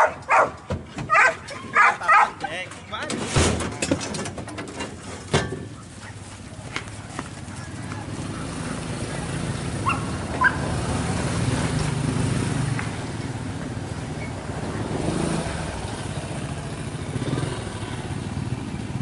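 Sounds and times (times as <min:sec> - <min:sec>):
motorcycle engine running: 0:05.7 - 0:19.0.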